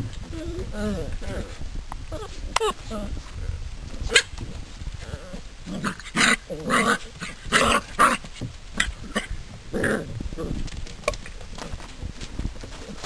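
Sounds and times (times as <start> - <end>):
puppies growling and yapping: 5.0 - 11.1.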